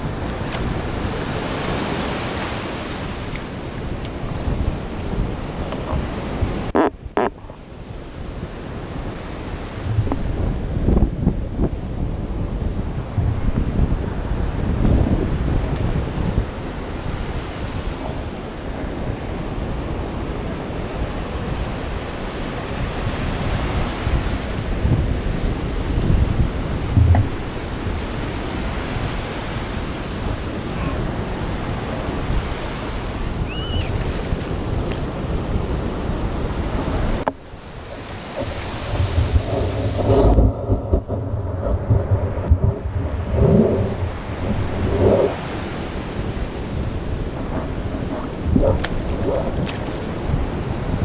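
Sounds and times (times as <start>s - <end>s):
wind buffeting microphone: 0.0s - 51.0s
muffled underwater thumps: 9.9s - 10.5s, 26.9s - 27.4s.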